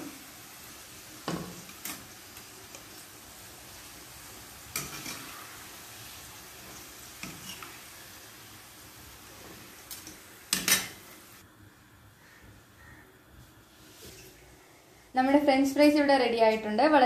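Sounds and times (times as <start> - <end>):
fries sizzling in hot oil: 0.0 - 11.6.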